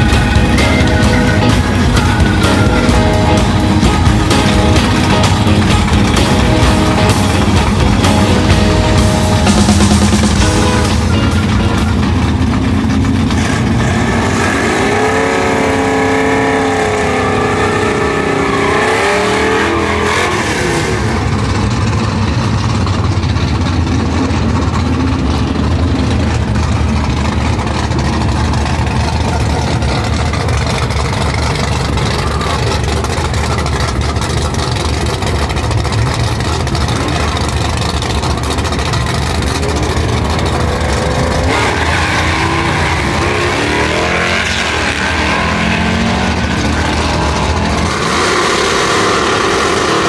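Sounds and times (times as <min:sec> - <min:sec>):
car engine revving: 0:00.0 - 0:50.0.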